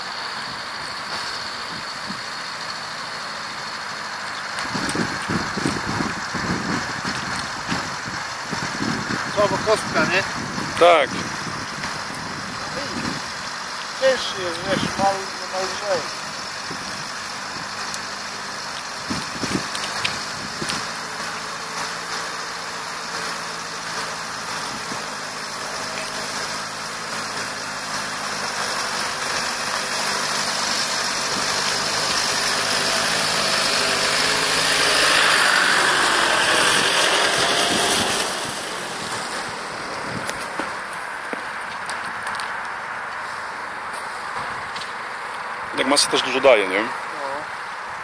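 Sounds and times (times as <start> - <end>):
vehicle engine climbing slope: 0.0 - 48.0
wind buffeting microphone: 4.6 - 13.5, 14.6 - 15.1, 16.3 - 17.8, 19.0 - 21.0, 35.4 - 41.0.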